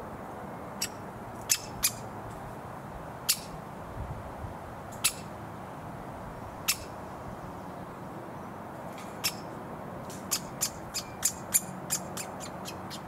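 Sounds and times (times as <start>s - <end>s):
low background noise: 0.0s - 13.0s
woodpecker calls: 0.8s - 2.0s, 3.2s - 3.6s, 4.9s - 5.3s, 6.6s - 6.9s, 9.2s - 9.5s, 10.1s - 13.0s.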